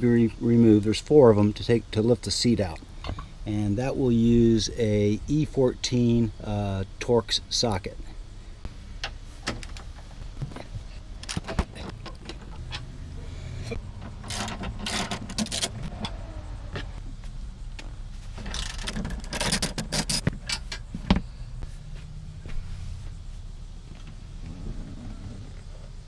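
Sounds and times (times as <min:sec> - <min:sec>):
hand ratchet clicking: 0:18.5 - 0:20.8.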